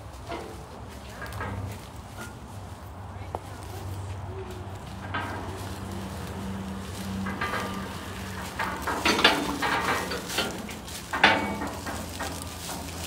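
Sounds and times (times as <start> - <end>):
metal cage clanking and rattling: 0.3 - 2.4, 4.8 - 13.0.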